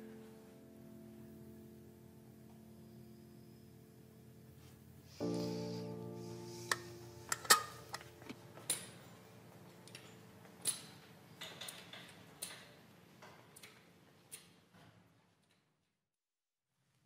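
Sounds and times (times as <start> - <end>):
metal box clinking: 7.3 - 8.4
footsteps on tiled floor: 7.8 - 11.2.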